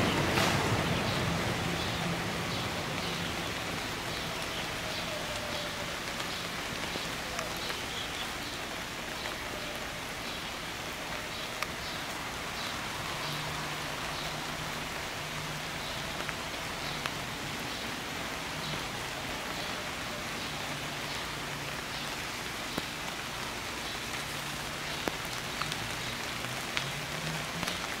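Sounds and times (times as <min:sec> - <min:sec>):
rain on leaves and grass: 0:00.0 - 0:28.0
sharp water drips: 0:00.0 - 0:28.0.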